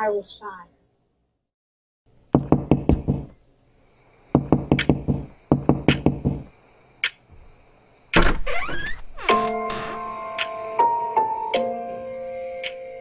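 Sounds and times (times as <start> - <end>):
rapid knocking on a door: 2.4 - 3.4, 4.3 - 6.5.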